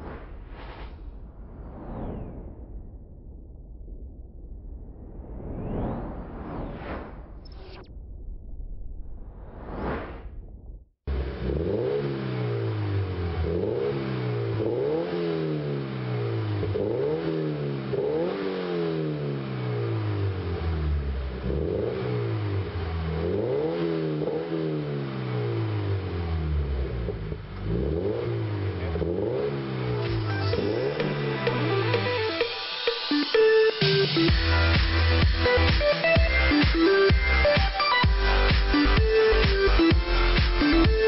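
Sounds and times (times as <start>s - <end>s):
short whoosh: 0.0s - 10.9s
car engine revving: 11.1s - 32.8s.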